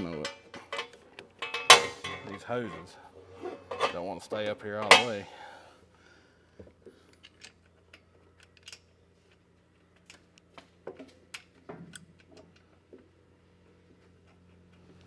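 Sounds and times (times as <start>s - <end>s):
metal parts clicking and tapping: 0.0s - 2.4s, 3.5s - 5.3s, 7.1s - 12.7s.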